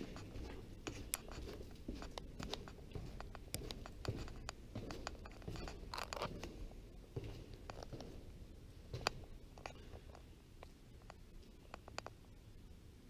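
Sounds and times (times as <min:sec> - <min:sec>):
footsteps going down stairs: 0:00.0 - 0:10.1
steady low rumble: 0:00.0 - 0:13.0.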